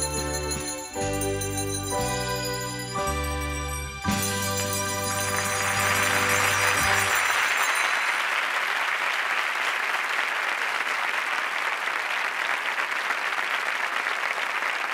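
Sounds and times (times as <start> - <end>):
music closing notes: 0.0 - 7.3
audience applauding: 4.1 - 14.9.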